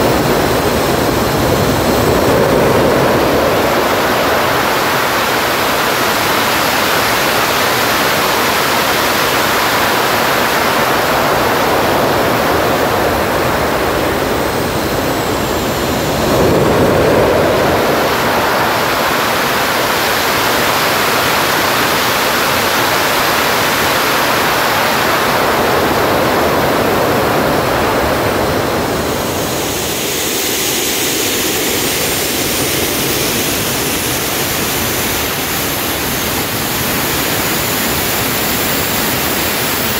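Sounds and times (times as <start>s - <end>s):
high turbine whistles: 0.0s - 39.9s
jet engine rushing: 0.0s - 39.9s.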